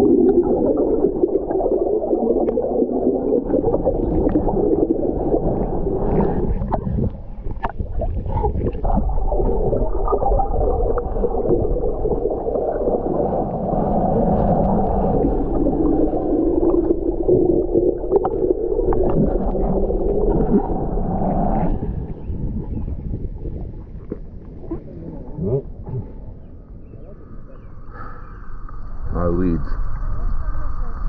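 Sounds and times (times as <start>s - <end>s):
underwater rumble of moving water: 0.0s - 31.0s
underwater clicks and pops: 6.7s - 8.9s.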